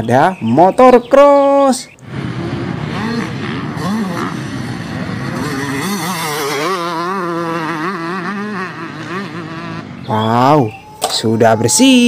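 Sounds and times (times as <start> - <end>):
dirt bike engine revving: 2.0 - 10.8.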